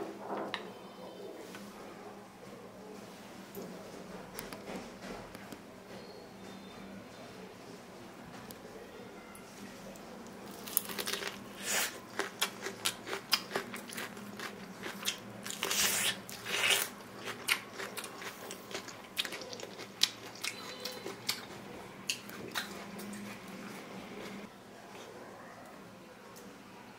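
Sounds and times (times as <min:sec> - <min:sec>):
corn husk crunching and crackling: 0:10.5 - 0:18.9.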